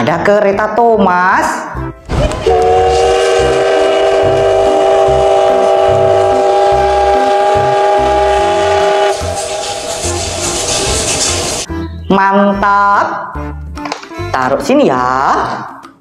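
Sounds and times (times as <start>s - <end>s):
steam locomotive whistle: 2.4s - 11.7s
locomotive chuffing rumble: 2.5s - 11.7s.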